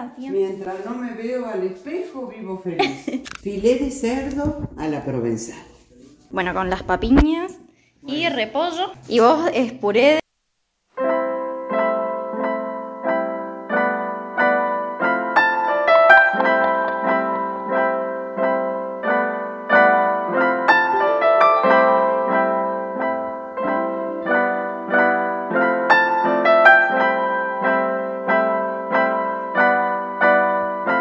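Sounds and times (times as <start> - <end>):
solo piano music: 11.0 - 31.0.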